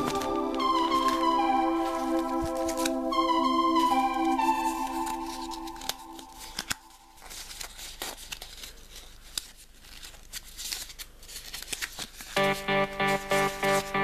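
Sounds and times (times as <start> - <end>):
background music: 0.0 - 7.1, 12.4 - 14.0
foil wrapper crinkling: 4.0 - 12.4.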